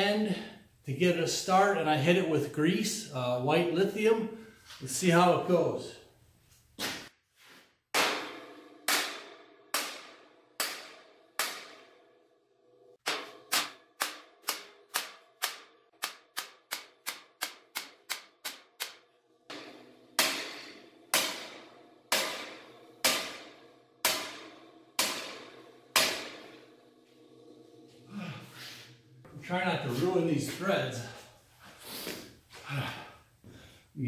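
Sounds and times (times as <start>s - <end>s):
hammer clanging on steel pipe: 13.0s - 27.5s.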